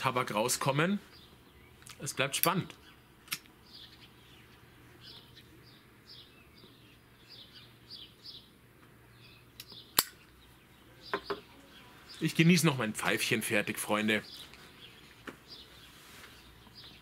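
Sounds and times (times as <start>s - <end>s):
songbirds chirping: 0.0s - 17.0s
sharp click: 3.2s - 3.5s, 9.6s - 10.2s.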